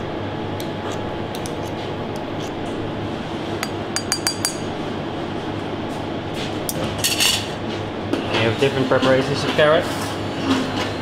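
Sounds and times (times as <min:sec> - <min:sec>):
metal spoon clinking against bowl: 0:03.6 - 0:04.7
kitchen background noise: 0:05.9 - 0:11.0.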